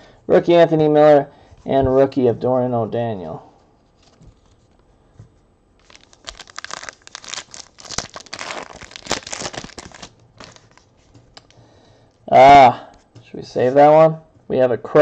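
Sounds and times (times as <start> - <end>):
foil wrapper crinkling and tearing: 5.8 - 11.6.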